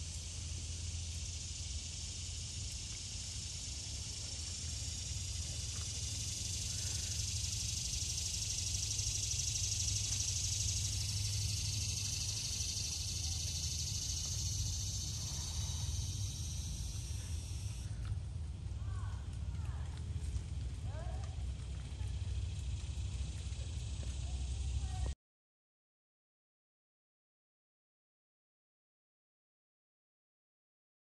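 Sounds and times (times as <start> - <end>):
high even hiss: 0.6 - 17.9
faint chirps: 1.2 - 17.9.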